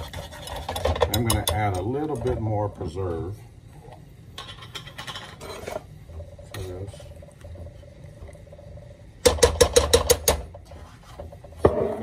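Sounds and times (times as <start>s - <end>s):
utensils scraping and clinking: 0.0s - 2.7s, 4.4s - 7.6s.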